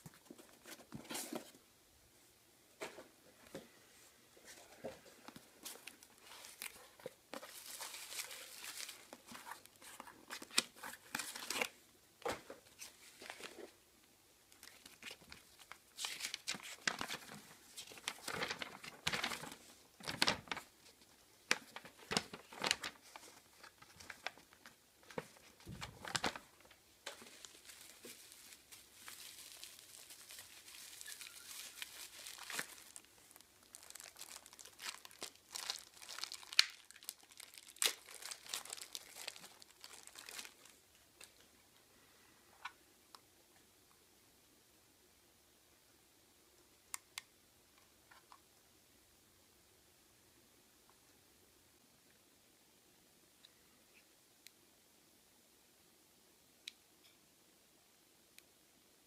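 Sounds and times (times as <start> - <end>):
plastic bag crinkling: 5.7 - 11.8, 14.6 - 20.8, 21.4 - 40.8
paper rustling: 14.6 - 40.8.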